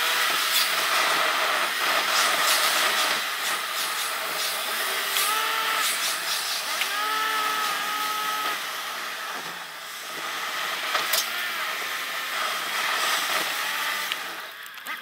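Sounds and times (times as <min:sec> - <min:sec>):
engine pitch sweeping: 0:04.8 - 0:09.3.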